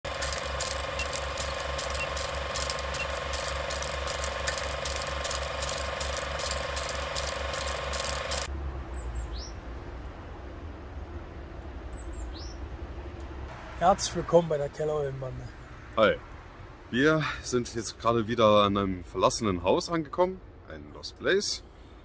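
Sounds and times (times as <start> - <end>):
film projector clatter: 0.0 - 8.5
steady hum: 0.0 - 8.5.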